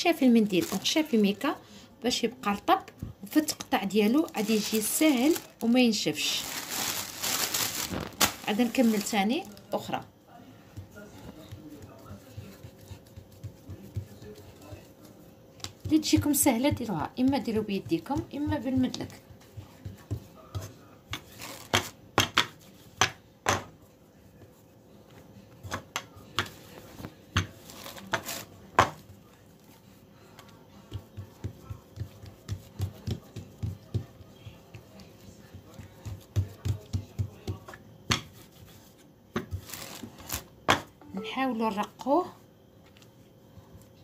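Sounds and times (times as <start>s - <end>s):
hands patting pastry dough: 0.0s - 1.4s, 2.4s - 40.9s
rolling pin on dough: 8.6s - 40.9s.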